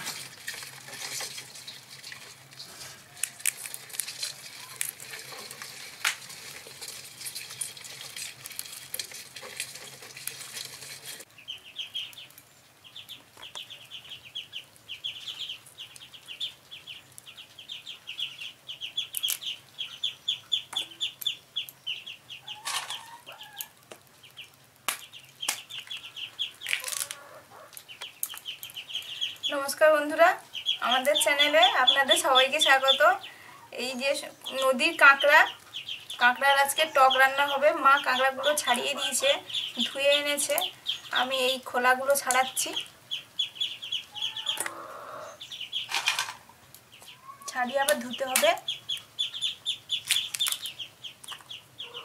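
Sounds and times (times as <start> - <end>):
crab shells crackling: 0.0 - 11.3, 14.7 - 33.5, 45.7 - 51.8
sharp cracks: 24.8 - 27.2, 49.9 - 51.5.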